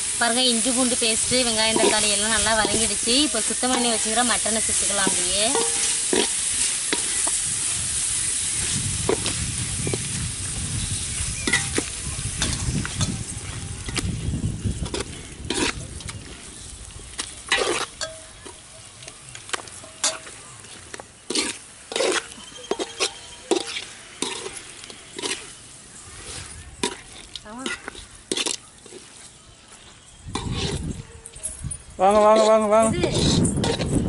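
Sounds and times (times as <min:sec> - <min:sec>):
metal ladle scraping a pot: 0:00.0 - 0:09.4, 0:11.4 - 0:13.2, 0:14.8 - 0:15.8, 0:17.5 - 0:18.3, 0:19.7 - 0:29.1, 0:30.3 - 0:30.9, 0:32.3 - 0:34.0
masala sizzling in a pot: 0:00.0 - 0:30.9, 0:32.0 - 0:34.0.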